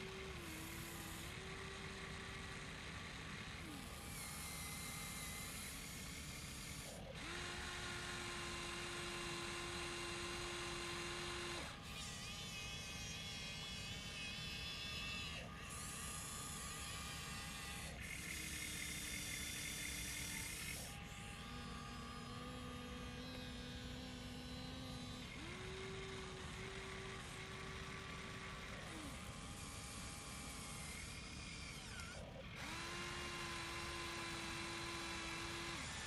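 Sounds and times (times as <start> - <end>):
small electric motors whining: 0.0 - 36.0.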